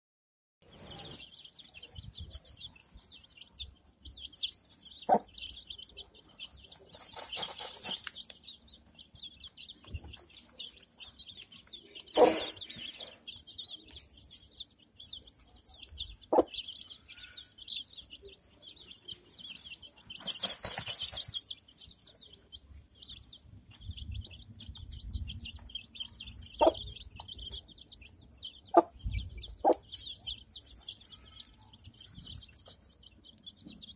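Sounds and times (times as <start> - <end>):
chicks peeping: 0.6 - 33.9
hen clucking: 5.0 - 8.4, 9.9 - 13.4, 15.7 - 18.4, 25.5 - 32.0
hen dust-bathing rustle: 6.8 - 8.3.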